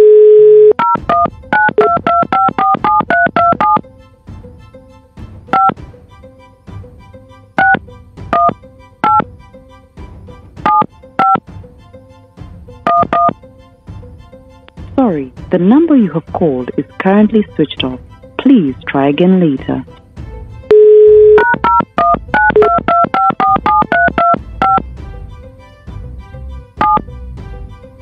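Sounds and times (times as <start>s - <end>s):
keypad beeps: 0.0s - 3.8s, 5.5s - 5.8s, 7.6s - 9.2s, 10.7s - 11.4s, 12.9s - 13.3s, 20.7s - 24.8s, 26.8s - 27.0s
telephone dial tone: 0.0s - 3.8s, 5.5s - 5.8s, 7.6s - 7.8s, 8.4s - 9.2s, 10.7s - 11.4s, 12.9s - 13.4s, 20.7s - 24.8s, 26.8s - 27.0s
soft background music: 0.8s - 28.0s.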